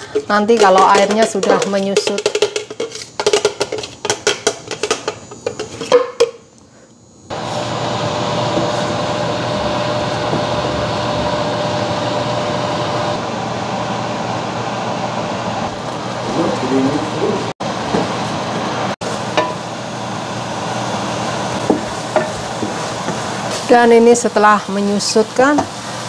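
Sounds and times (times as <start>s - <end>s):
wooden spatula stirring: 0.0s - 6.0s
steady hum: 0.0s - 24.8s
paste sizzling in pan: 21.0s - 26.0s.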